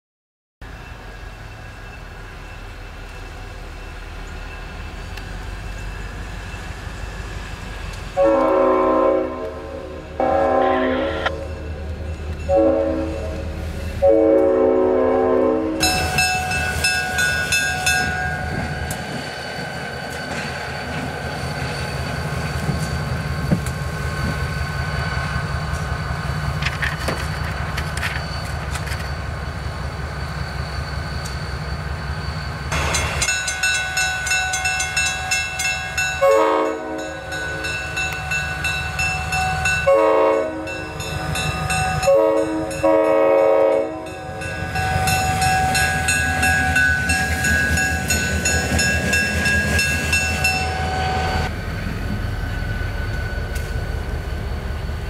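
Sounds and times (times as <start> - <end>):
crossing bell ringing: 0.6 - 8.4, 10.2 - 14.1, 15.8 - 23.5, 27.4 - 51.5
locomotive engine rumbling: 0.6 - 55.0
locomotive air horn blasts: 8.2 - 11.5, 12.5 - 16.2, 36.2 - 37.2, 39.8 - 40.9, 42.0 - 44.2.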